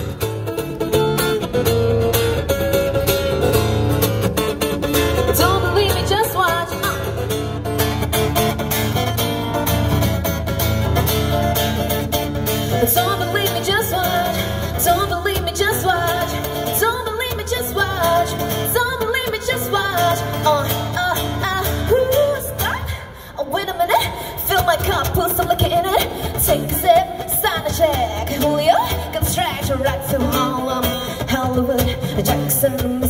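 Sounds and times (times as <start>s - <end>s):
guitar playing pop song: 0.0s - 33.0s
person singing: 5.2s - 7.3s, 12.7s - 33.0s.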